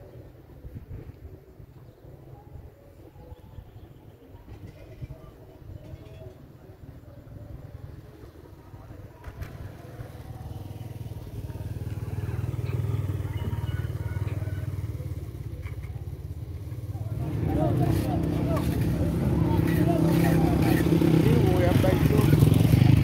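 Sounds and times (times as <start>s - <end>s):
motorcycle engine running: 9.4s - 23.0s.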